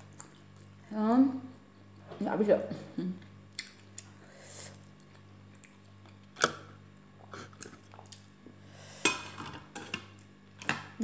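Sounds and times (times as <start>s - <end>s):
chewing mouth sounds: 0.0s - 0.9s
low steady hum: 0.0s - 11.0s.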